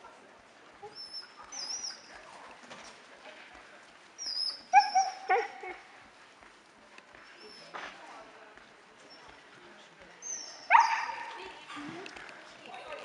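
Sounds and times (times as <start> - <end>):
puppy whining and yipping: 4.2 - 5.5.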